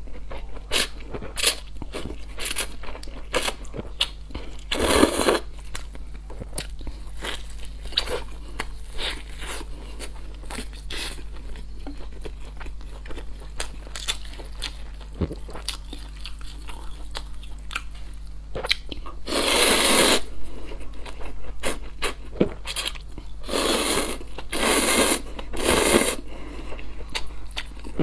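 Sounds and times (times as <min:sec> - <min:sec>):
chewing crispy food: 0:00.0 - 0:19.2, 0:26.4 - 0:28.0
slurping noodles: 0:19.3 - 0:20.3, 0:23.4 - 0:26.2.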